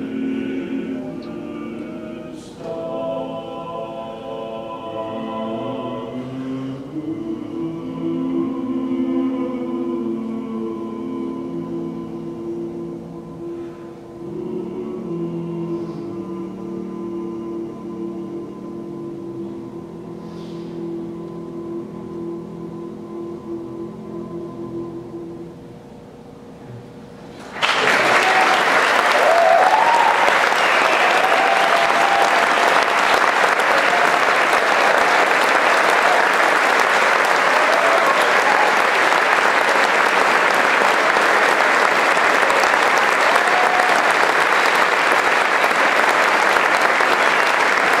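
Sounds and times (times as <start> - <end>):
a cappella quartet chord: 0.0 - 26.6, 28.1 - 48.0
audience applause: 27.4 - 48.0.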